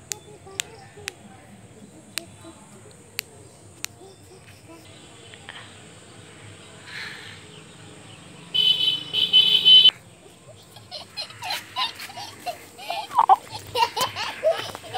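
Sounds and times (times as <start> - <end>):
horn honking: 8.5 - 10.0.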